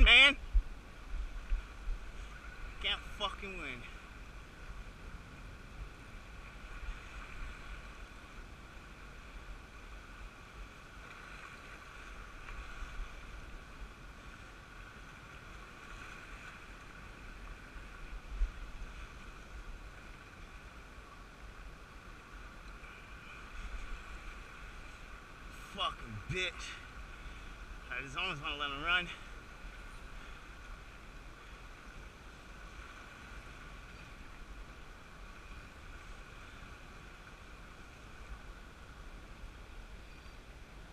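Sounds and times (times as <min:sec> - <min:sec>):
wind rumbling on microphone: 0:00.0 - 0:02.9, 0:03.8 - 0:28.1
faint constant whine: 0:00.0 - 0:40.9
surf: 0:00.0 - 0:40.9.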